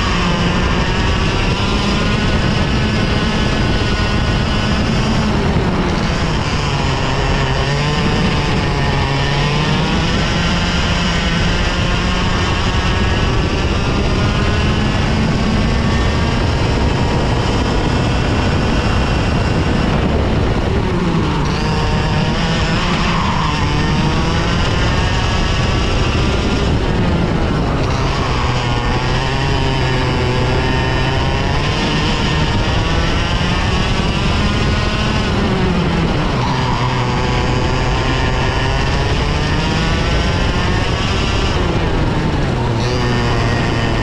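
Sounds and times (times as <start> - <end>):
kart engine revving: 0.0 - 44.0.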